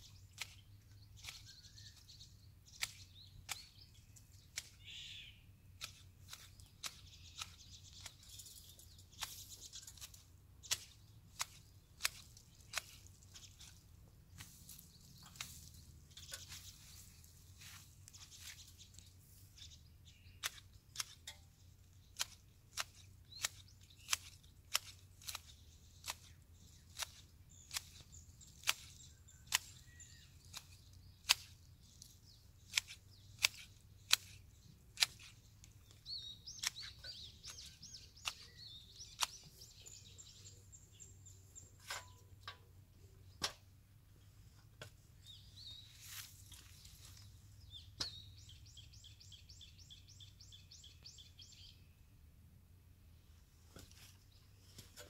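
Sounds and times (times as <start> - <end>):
small birds chirping: 0.0 - 52.2, 53.1 - 55.0
pruning shears snipping: 0.1 - 5.0, 5.7 - 19.7, 20.3 - 40.6, 41.2 - 43.7, 44.7 - 48.5
bird trill: 4.6 - 5.5, 27.5 - 31.2, 35.8 - 42.4.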